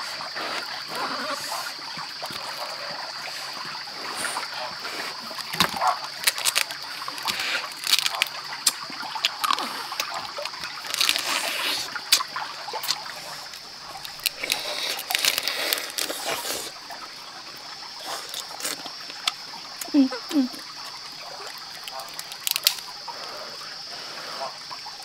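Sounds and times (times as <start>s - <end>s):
crab being bitten and chewed: 5.1s - 16.8s, 18.0s - 19.9s, 20.7s - 23.0s.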